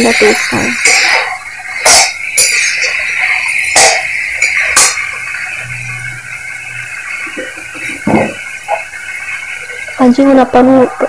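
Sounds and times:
sharp metal clanks: 0.0 - 3.1, 3.7 - 5.1
frying sizzle: 0.0 - 11.0.

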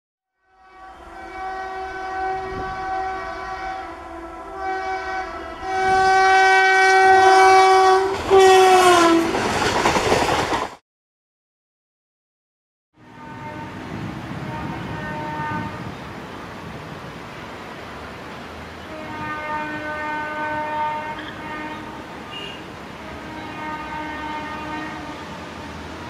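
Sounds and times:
locomotive horn blasts: 0.4 - 9.4, 13.0 - 16.1, 18.8 - 26.0
train rushing and rattling past: 0.6 - 10.8, 13.0 - 26.0.

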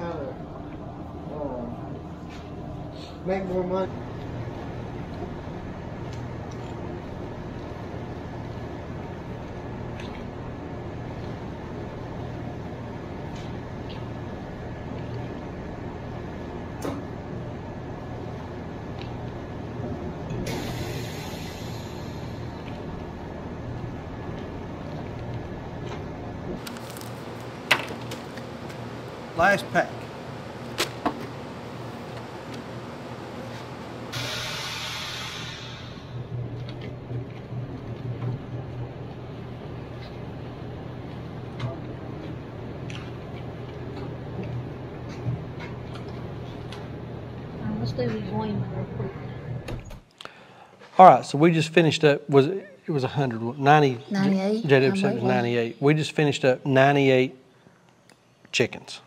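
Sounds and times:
machine hum: 0.0 - 50.7
vacuum sealer hiss: 20.4 - 22.5, 34.1 - 36.1.

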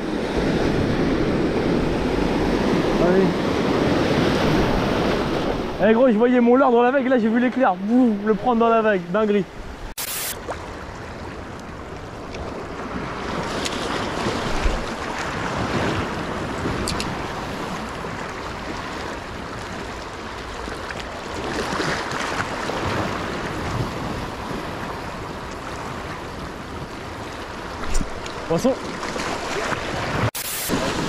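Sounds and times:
small waves washing around rocks: 10.4 - 31.0.

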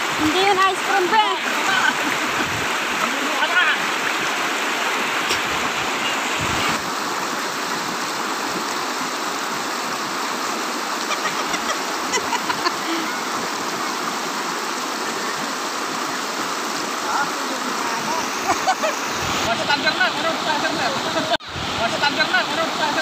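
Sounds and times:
river rushing over rapids: 0.0 - 23.0.

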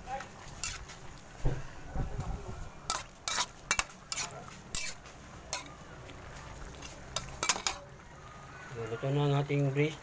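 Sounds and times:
utensil scraping metal pot: 0.5 - 1.0, 2.8 - 5.7.

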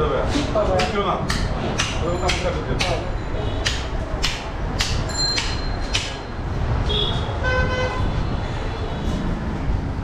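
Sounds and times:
heavy knife chopping meat: 0.7 - 6.2
vehicle horn toot: 6.9 - 8.9.

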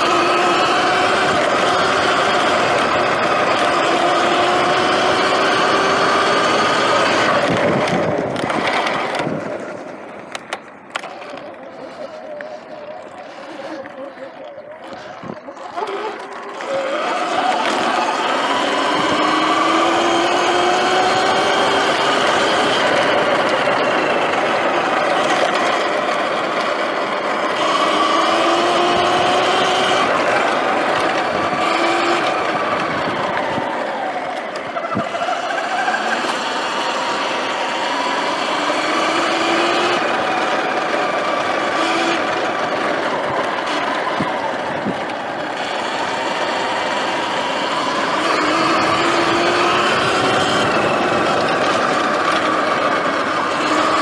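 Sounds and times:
wind and tyre noise: 0.0 - 54.0
electric motor whine: 10.9 - 34.6, 36.0 - 54.0.

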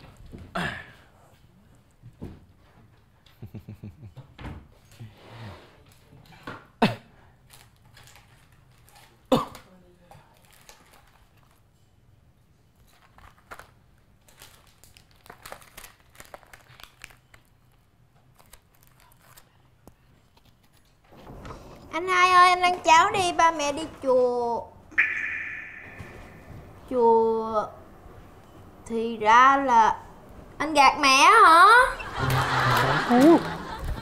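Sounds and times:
plastic wrapper crinkling: 10.3 - 11.6, 12.9 - 19.6
wrapper sharp snaps: 13.0 - 19.5.

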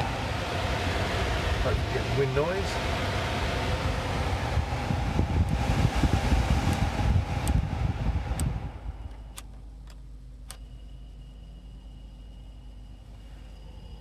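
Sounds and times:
faint hum: 0.0 - 14.0
heater fan blowing air: 0.0 - 14.0
fan-speed knob clicking: 6.6 - 10.7.

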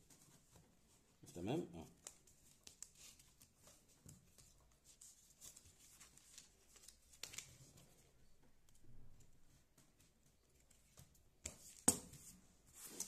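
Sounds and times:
paper rustling: 1.8 - 8.8, 9.4 - 13.0.

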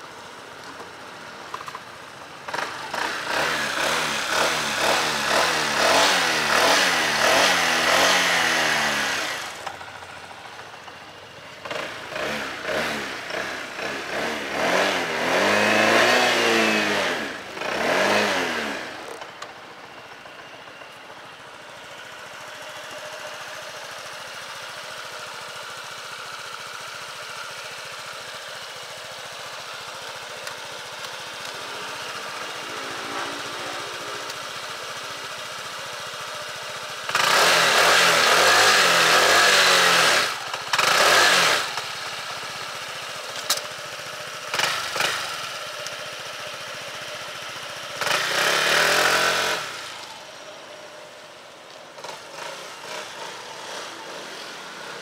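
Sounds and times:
scooter engine passing by: 2.4 - 20.6, 29.1 - 43.3, 43.9 - 55.0.

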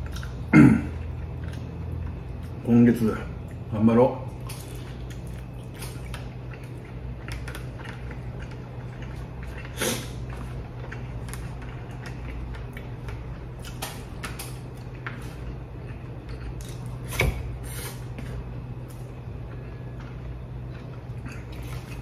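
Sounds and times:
chewing noises: 0.0 - 17.1, 17.8 - 22.0
steady low hum: 0.0 - 22.0.

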